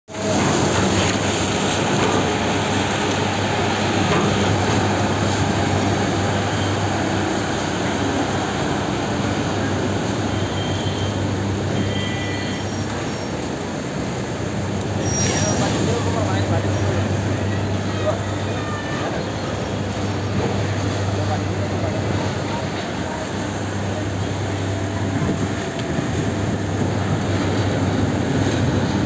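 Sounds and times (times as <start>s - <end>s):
machinery rumble: 0.1s - 29.0s
truck diesel engine: 0.1s - 29.0s
faint high squeaks: 15.0s - 15.8s.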